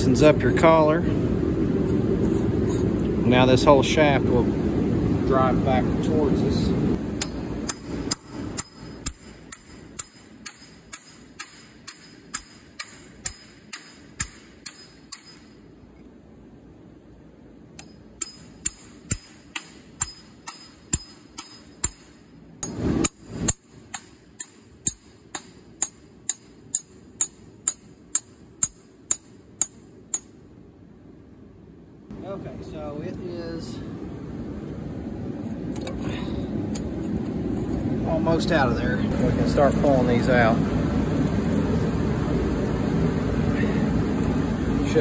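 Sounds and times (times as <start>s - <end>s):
hammer tapping steel punch: 7.2s - 15.6s, 17.8s - 30.3s.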